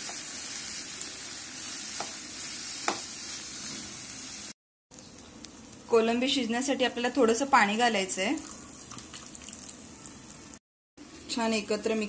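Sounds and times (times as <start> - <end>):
prawns sizzling in oil: 0.0 - 5.8.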